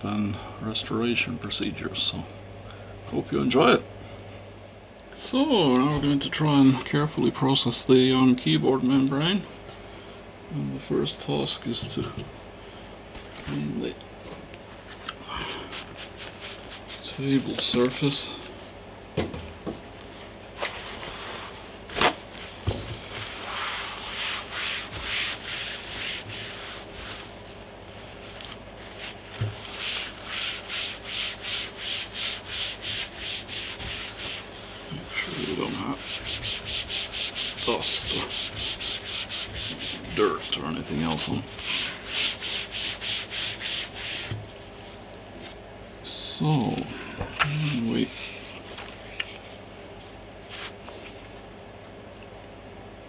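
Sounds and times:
paper towel rubbing a table: 15.6s - 17.9s, 20.1s - 45.6s.

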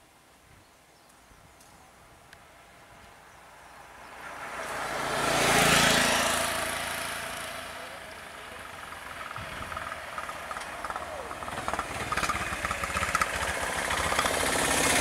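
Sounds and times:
auto-rickshaw driving past: 3.8s - 15.0s.

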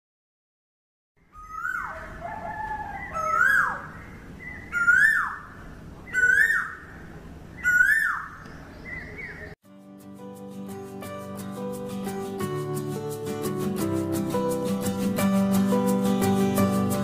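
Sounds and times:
bird calling: 1.2s - 9.6s
faint outdoor background: 1.2s - 17.0s.

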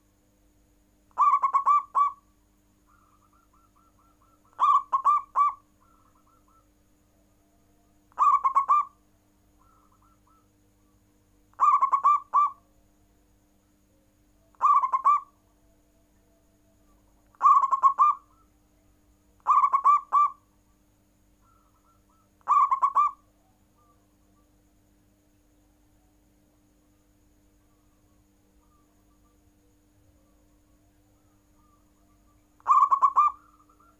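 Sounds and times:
dove cooing: 1.1s - 2.2s, 2.9s - 6.7s, 8.1s - 9.0s, 9.6s - 10.5s, 11.5s - 12.6s, 14.6s - 15.3s, 17.3s - 18.5s, 19.4s - 20.4s, 21.4s - 23.2s, 31.6s - 33.9s.

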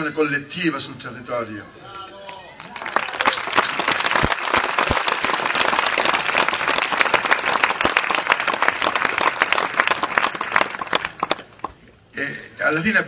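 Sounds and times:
crowd applauding: 2.2s - 11.7s.

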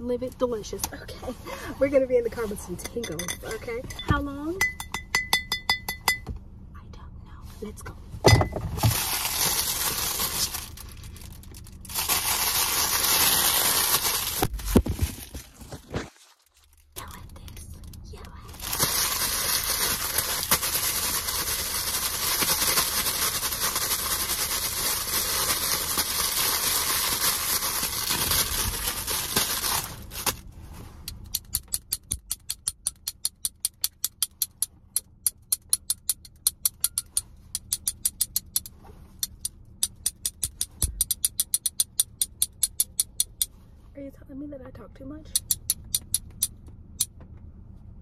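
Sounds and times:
plastic packaging crinkling: 8.8s - 18.0s, 18.6s - 30.4s.

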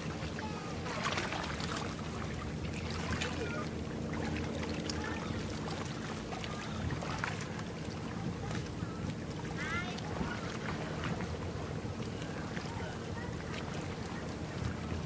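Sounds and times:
boat engine drone: 0.0s - 15.0s
water lapping: 0.0s - 15.0s.

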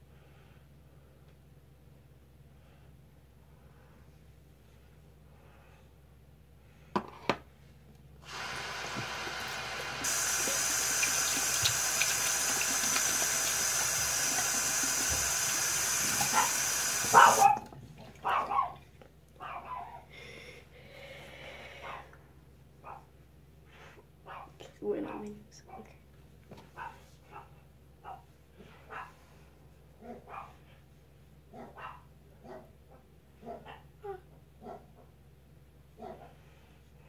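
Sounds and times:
sink tap running: 8.2s - 17.6s
tap shut off knock: 8.3s - 17.4s.

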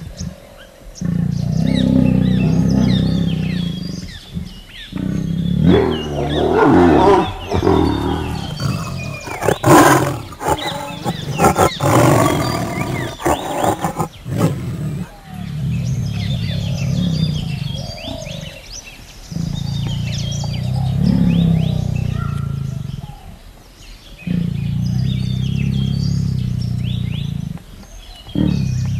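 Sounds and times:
tigers growling: 0.0s - 28.9s.

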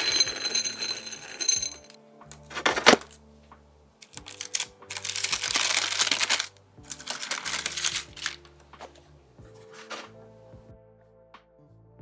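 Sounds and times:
parchment paper crinkling: 4.0s - 9.0s, 9.6s - 10.2s.

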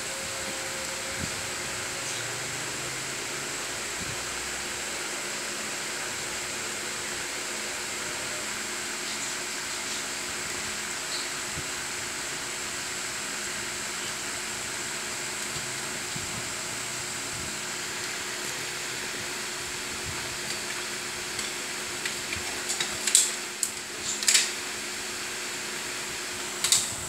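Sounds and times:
faint high whine: 0.0s - 21.1s
steady whirring hiss: 0.0s - 27.0s.

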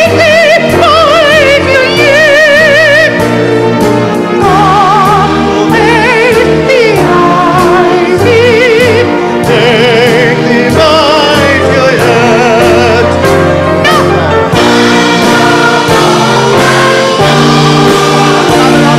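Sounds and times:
orchestral accompaniment: 0.0s - 18.9s
operatic high voice singing: 4.4s - 13.2s, 13.8s - 14.3s.

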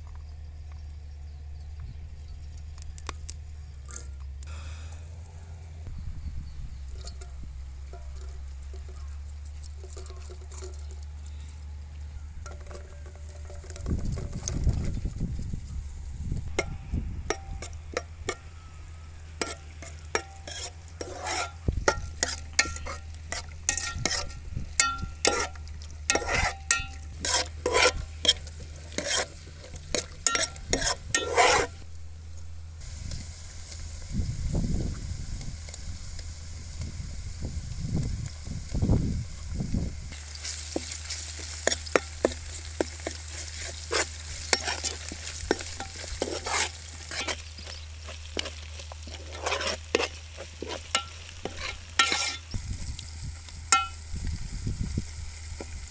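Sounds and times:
spoon scraping and clanking pot: 6.8s - 11.7s, 12.4s - 15.7s, 16.5s - 31.9s, 40.1s - 52.6s, 53.7s - 54.0s
vegetables frying in oil: 32.8s - 55.9s.

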